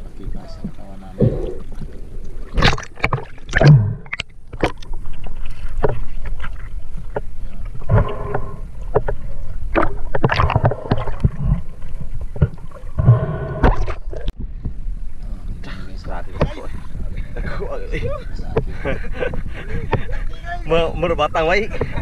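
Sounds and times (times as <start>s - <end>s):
water sloshing and splashing: 0.0s - 20.8s
muffled low rumble: 3.6s - 20.4s.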